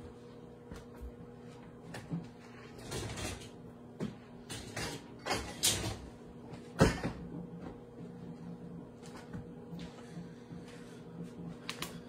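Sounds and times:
microwave oven humming: 0.0 - 12.0
kitchen knocks and rustles: 1.9 - 7.8.

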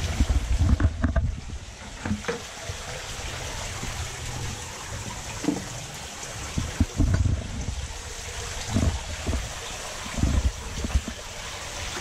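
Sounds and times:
low knocks and thumps: 0.0 - 2.4, 6.5 - 11.3
water pouring into tank: 0.0 - 12.0.

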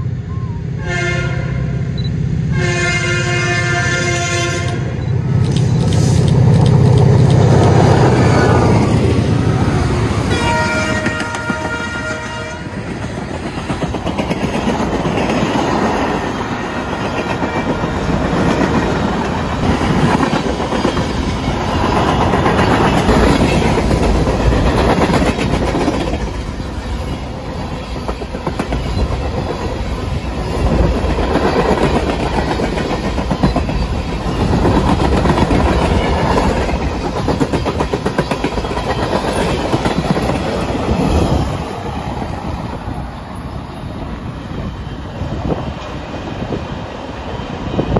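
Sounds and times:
train horn: 0.0 - 1.9, 2.5 - 5.0, 10.0 - 13.0, 17.3 - 18.8
locomotive engine drone: 0.0 - 14.1
train wheels clattering on rails: 4.7 - 47.9.

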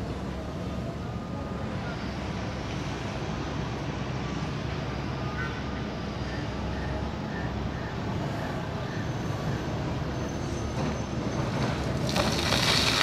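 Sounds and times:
engine and traffic hum: 0.0 - 13.0
excavator working: 6.0 - 13.0
earth pouring down: 12.0 - 13.0.

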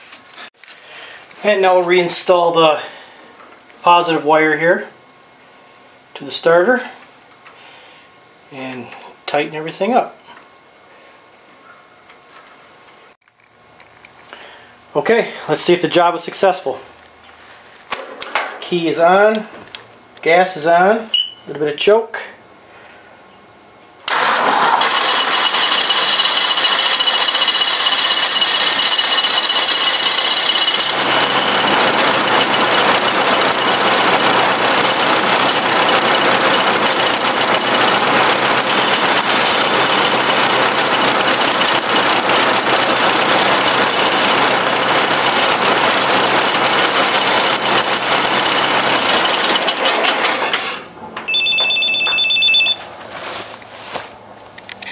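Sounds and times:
tractor engine running: 24.1 - 52.3
two-tone electronic beep: 51.3 - 52.8.

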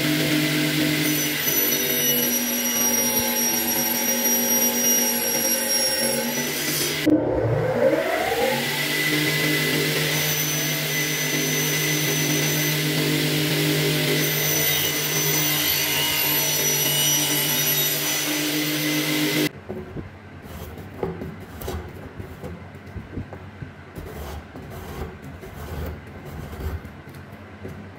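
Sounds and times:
hand tool scraping wood: 20.4 - 22.6, 24.0 - 27.3.

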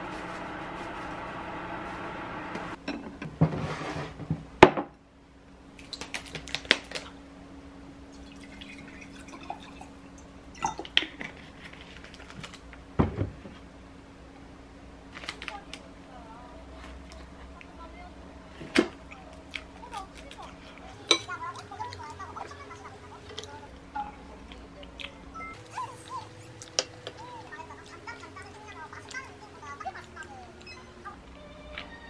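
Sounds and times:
steady hum: 0.0 - 3.0, 6.8 - 32.0
water pouring into a glass: 8.1 - 10.9
glass bowl and utensils clinking: 21.0 - 21.5.

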